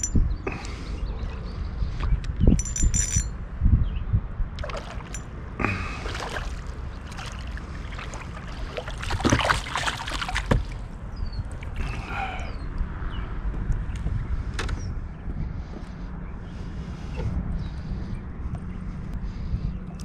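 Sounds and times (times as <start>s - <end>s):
water splashing around kayak: 4.6s - 12.3s.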